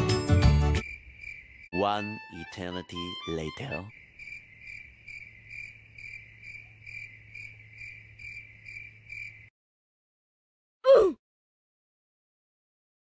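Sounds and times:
crickets chirping: 0:00.7 - 0:01.8, 0:03.1 - 0:09.5.

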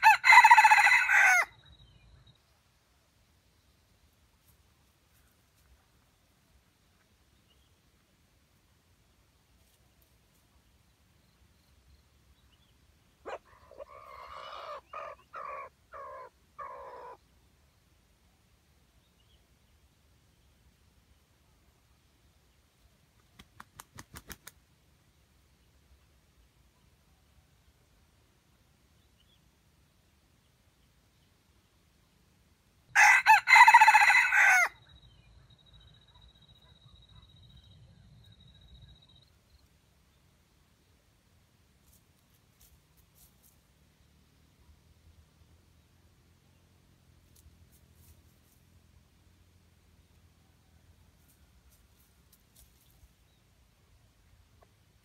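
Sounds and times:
rooster crowing: 0:00.0 - 0:01.5, 0:32.9 - 0:34.8.

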